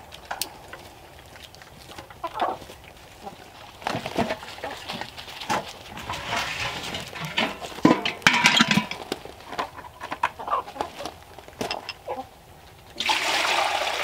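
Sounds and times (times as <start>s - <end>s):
footsteps on gravel: 0.0s - 12.0s
chickens clucking: 0.0s - 13.0s
metal waterer clanking: 4.0s - 10.6s.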